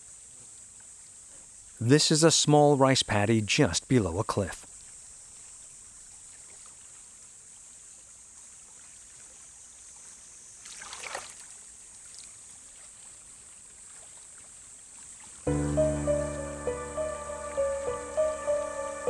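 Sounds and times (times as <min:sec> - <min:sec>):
soft water sound: 0:04.8 - 0:19.0
high-pitched hiss: 0:15.5 - 0:19.0.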